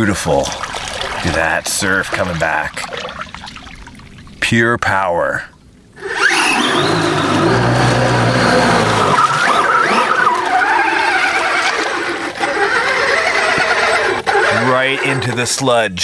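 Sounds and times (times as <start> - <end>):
tyres splashing in water: 0.0 - 4.4, 6.2 - 15.4
electric motor whining: 6.0 - 15.6.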